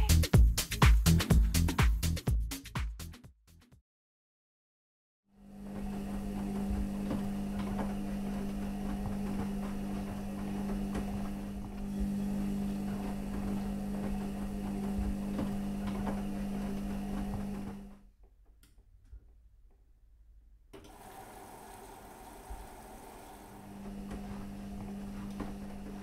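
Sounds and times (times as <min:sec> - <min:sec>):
low mechanical hum: 0:05.4 - 0:19.3, 0:20.7 - 0:26.0.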